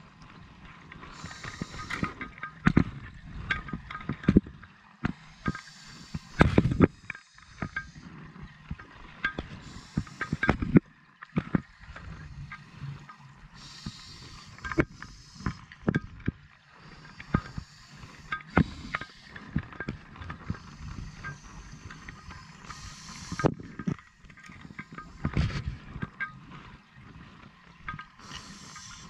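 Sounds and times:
regulator inhale hiss: 1.1 - 2.2, 5.2 - 8.1, 9.6 - 10.6, 13.6 - 15.7, 16.8 - 19.5, 20.5 - 23.6, 28.2 - 29.0
exhaled air bubbling: 4.4 - 26.3.

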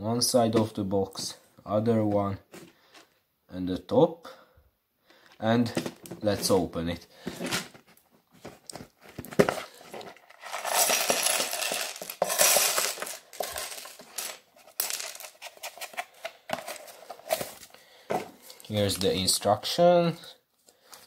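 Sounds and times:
plastic bricks clattering on wooden floor: 8.6 - 18.4.

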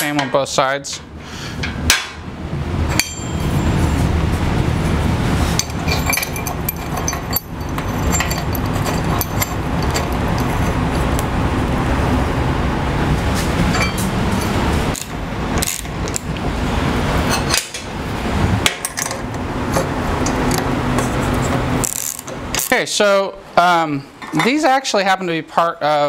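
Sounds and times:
steady loud noise: 0.0 - 24.0
metal clinks of bolts and tools: 2.9 - 3.6, 5.6 - 10.8, 13.7 - 16.2, 18.8 - 20.6.

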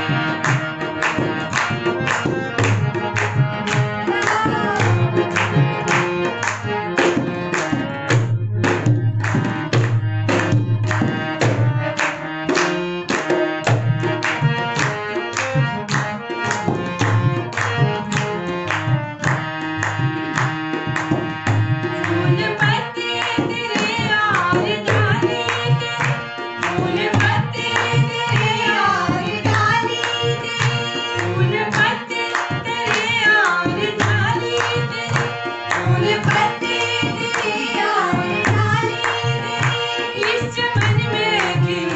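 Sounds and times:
dholak drum rhythm: 0.0 - 41.9
hand claps: 0.0 - 41.9
harmonium chords: 0.0 - 41.9
woman singing: 4.1 - 5.2, 22.1 - 41.9.

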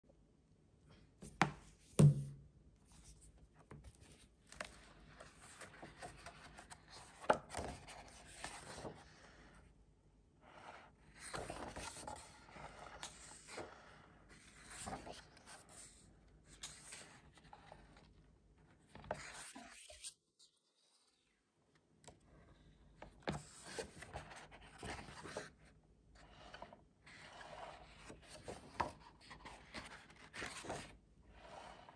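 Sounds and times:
thump: 1.4 - 2.4
book pages turning and rustling: 2.8 - 9.4, 11.1 - 18.2, 18.8 - 20.2, 23.0 - 31.9.

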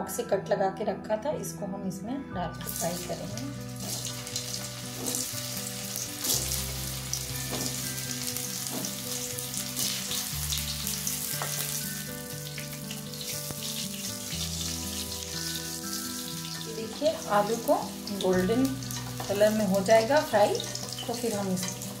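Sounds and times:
potatoes sizzling in hot oil: 2.6 - 22.0.

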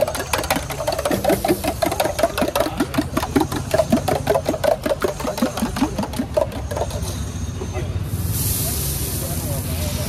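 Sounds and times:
spoon beating eggs in steel tumbler: 0.0 - 7.0.

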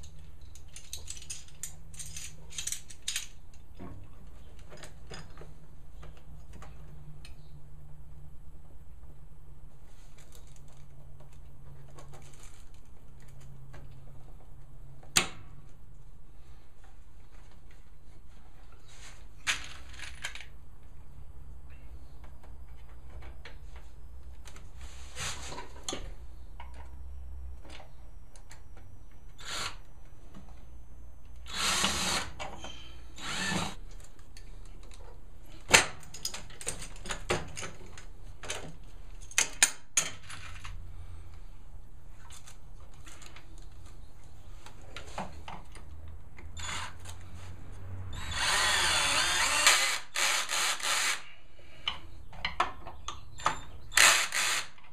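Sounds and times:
cordless drill driving screws: 29.4 - 29.8, 31.5 - 32.4, 33.2 - 33.8, 46.6 - 47.0, 48.1 - 51.2, 53.9 - 54.8.

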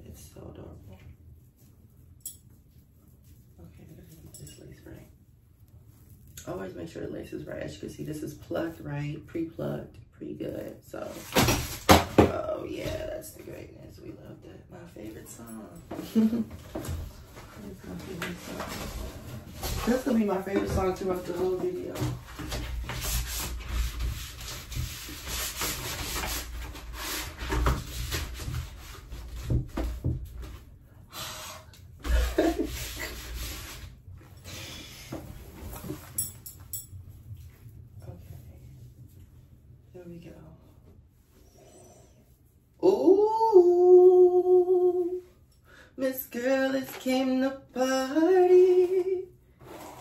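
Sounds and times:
woman singing: 42.8 - 45.3, 46.0 - 49.3.

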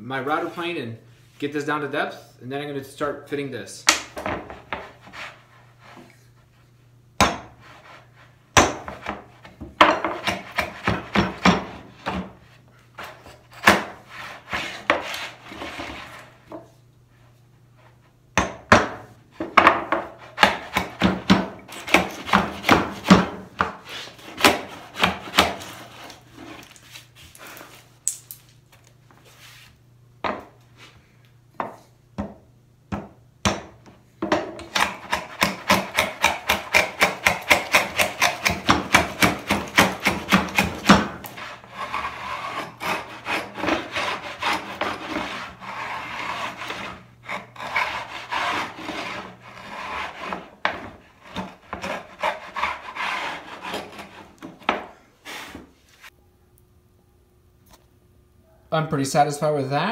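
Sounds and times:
faint steady hum: 0.0 - 59.9
router plane scraping wood: 13.0 - 16.5, 20.0 - 27.0, 34.7 - 55.7.

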